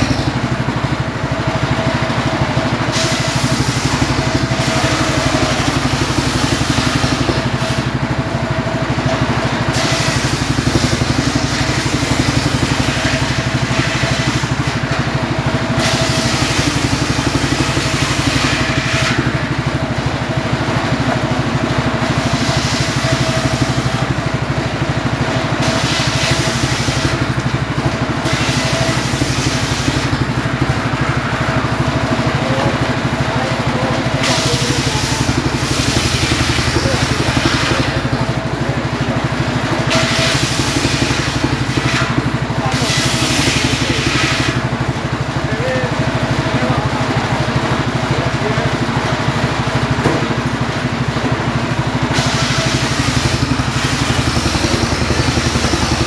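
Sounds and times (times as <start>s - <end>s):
engine-driven circular saw running: 0.0s - 56.0s
saw blade ripping logs: 2.9s - 7.9s, 9.7s - 15.0s, 15.7s - 19.6s, 25.4s - 27.5s, 28.2s - 30.2s, 34.2s - 38.2s, 39.9s - 44.6s, 52.1s - 56.0s.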